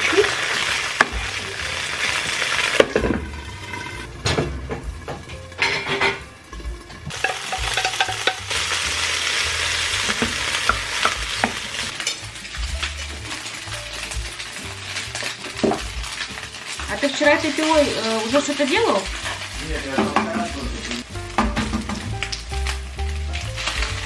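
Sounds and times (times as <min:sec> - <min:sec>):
sausages sizzling in frying pan: 0:00.0 - 0:24.0
spatula knocking and scraping pan: 0:02.7 - 0:08.9, 0:10.0 - 0:12.2, 0:21.4 - 0:22.2.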